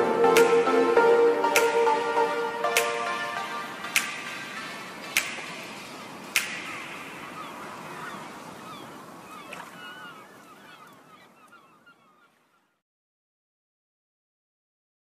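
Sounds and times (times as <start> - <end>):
background music: 0.0 - 8.0
chirp-like glides: 2.3 - 12.8.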